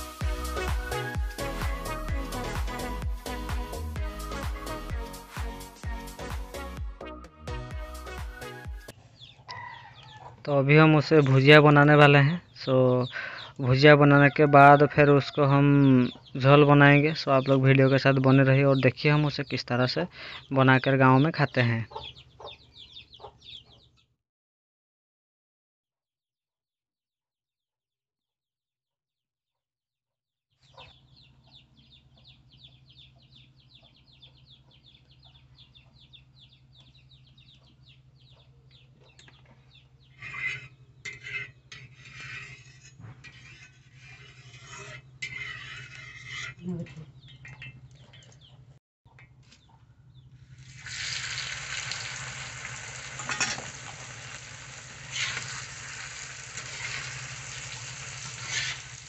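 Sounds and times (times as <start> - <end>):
metal spatula scraping iron pan: 40.1 - 47.0, 53.2 - 54.0, 55.0 - 59.0
shrimp frying sizzle: 50.6 - 59.0.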